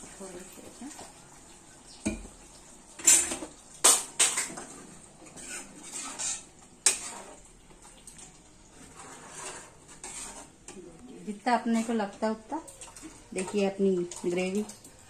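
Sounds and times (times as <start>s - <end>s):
ladle scraping pan: 3.0s - 7.5s, 8.6s - 10.8s, 11.5s - 14.8s.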